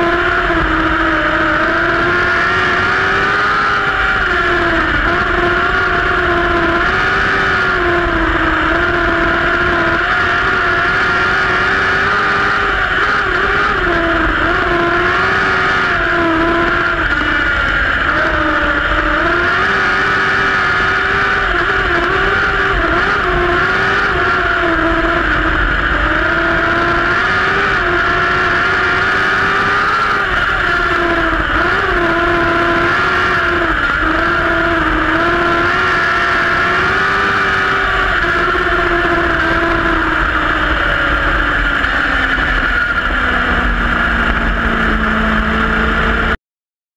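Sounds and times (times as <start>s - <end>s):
race car engine at high revs: 0.0s - 46.4s.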